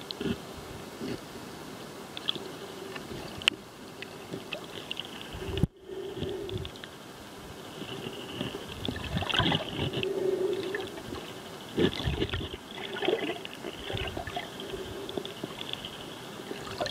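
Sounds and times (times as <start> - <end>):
water splashing surges: 8.5 - 16.9
water gurgling underwater: 8.8 - 15.6.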